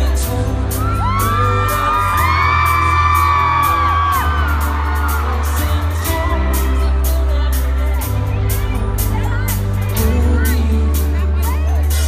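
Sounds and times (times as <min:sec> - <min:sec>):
crowd whooping and screaming: 0:00.5 - 0:09.0.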